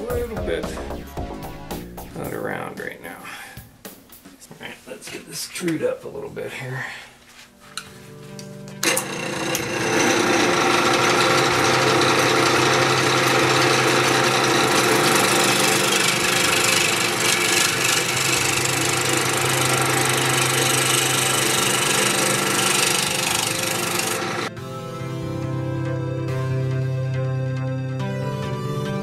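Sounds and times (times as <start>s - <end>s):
lathe low hum: 8.8s - 24.5s
lathe tool cutting wood: 8.8s - 24.5s.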